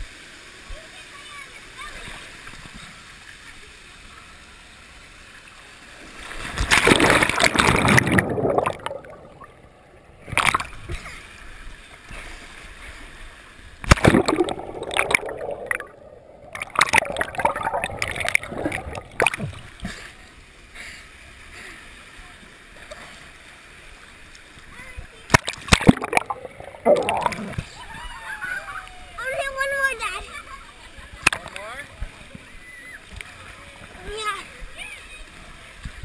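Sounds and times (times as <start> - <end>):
water rushing and splashing: 0.2 - 20.2, 23.7 - 35.7
water sloshing while swimming: 5.8 - 20.3, 24.6 - 28.7.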